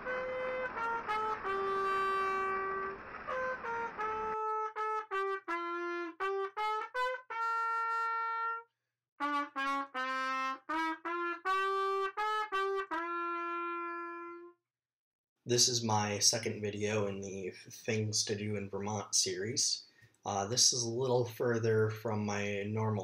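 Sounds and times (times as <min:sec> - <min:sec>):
brass melody: 0:00.0 - 0:14.6.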